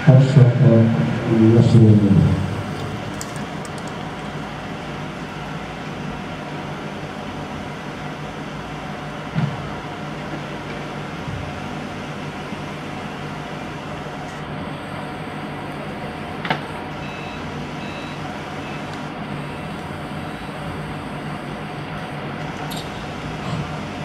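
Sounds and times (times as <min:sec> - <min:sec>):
faint short beeps: 0:16.6 - 0:19.8.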